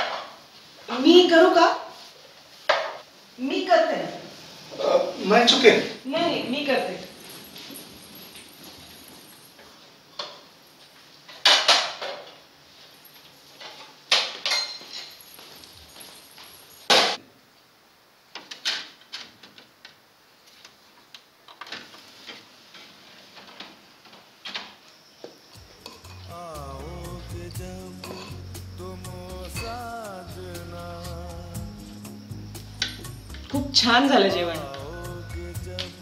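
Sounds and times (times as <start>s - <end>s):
dishes and utensils clattering: 13.5s - 17.2s, 25.8s - 26.3s, 28.0s - 28.4s
music: 25.6s - 36.0s.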